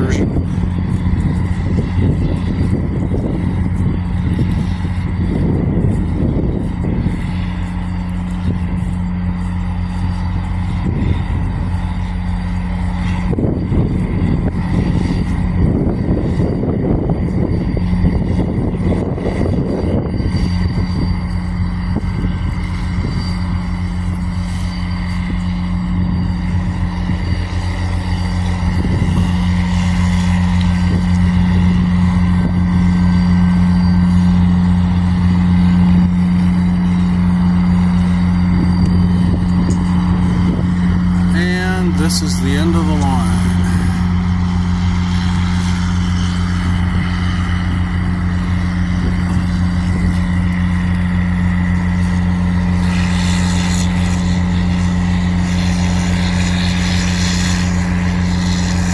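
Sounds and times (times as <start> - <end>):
diesel locomotive engine droning: 0.0 - 58.9
train rumbling past: 18.8 - 58.9.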